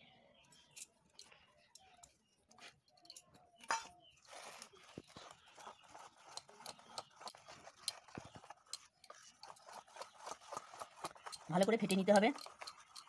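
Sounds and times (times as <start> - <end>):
whisk clicking against steel bowl: 5.6 - 13.0.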